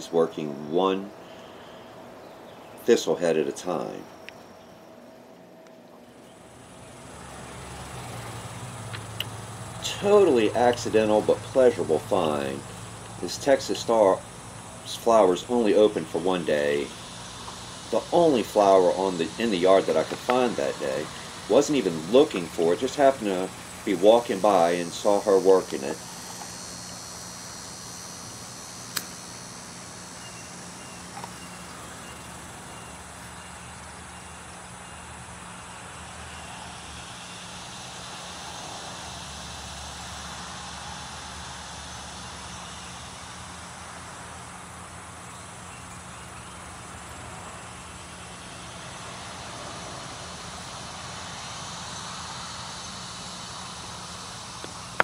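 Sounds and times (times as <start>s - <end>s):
faint insect chirping: 0.0s - 55.0s
low steady hum: 0.0s - 55.0s
steady hiss: 0.0s - 55.0s
sharp click: 28.9s - 29.2s.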